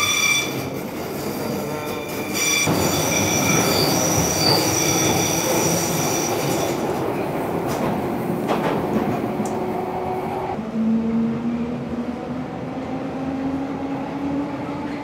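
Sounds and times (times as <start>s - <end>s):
train carriage rumble: 0.0s - 15.0s
train clicks: 6.4s - 9.7s.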